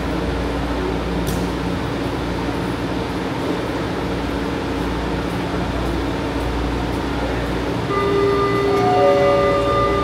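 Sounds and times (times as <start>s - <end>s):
station ventilation drone: 0.0s - 10.0s
faint steady tones: 7.8s - 10.0s.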